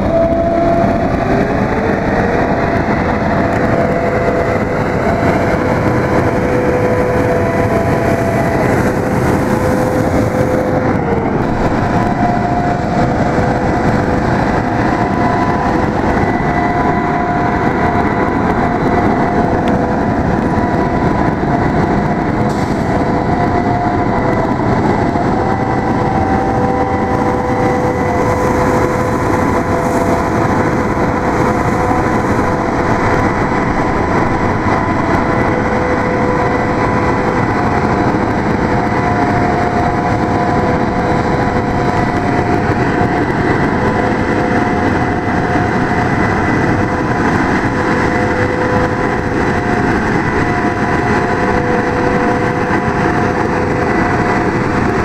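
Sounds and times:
truck engine and spraying water: 0.0 - 55.0.

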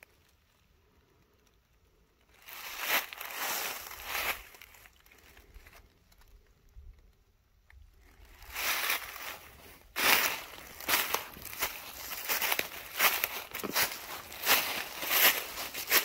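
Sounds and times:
footsteps outdoors: 2.4 - 5.4, 8.2 - 16.0.

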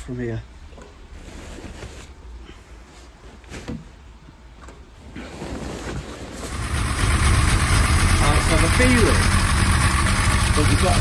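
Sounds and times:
car engine running: 6.5 - 11.0.

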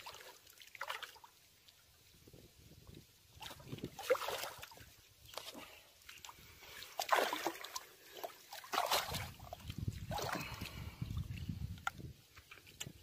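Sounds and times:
fish splashing in water: 0.0 - 1.4, 3.3 - 11.0.

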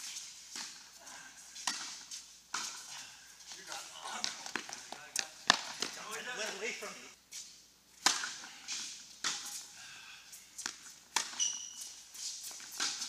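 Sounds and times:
tennis ball struck by racquets: 1.6 - 2.8, 4.2 - 6.0, 8.0 - 9.6, 10.6 - 11.4, 12.6 - 13.0
shoe squeak on court: 11.2 - 12.0.

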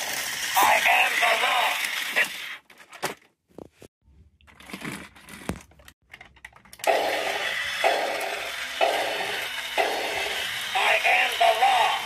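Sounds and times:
toy robot motor and gears pulsing: 0.0 - 2.6, 6.8 - 12.0.

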